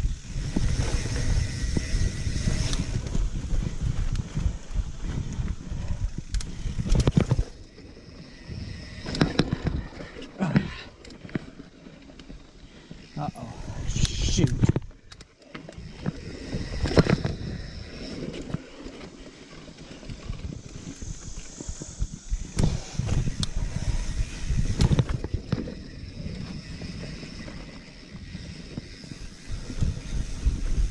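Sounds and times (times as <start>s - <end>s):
bike tyres rumbling on dirt: 0.0s - 30.9s
bike knocks and rattles: 0.3s - 12.4s, 22.4s - 30.9s.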